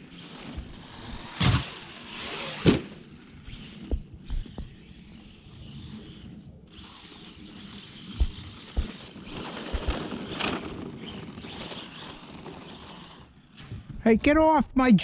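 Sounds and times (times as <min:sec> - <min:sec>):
electric motor whine: 0:00.0 - 0:13.4
tire noise on snow: 0:00.0 - 0:13.9
dull thumps: 0:03.7 - 0:04.8, 0:08.1 - 0:10.4.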